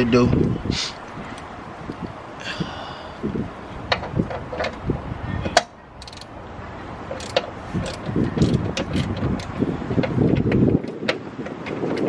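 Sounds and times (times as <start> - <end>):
socket wrench clicking: 5.6 - 6.3, 7.1 - 9.5.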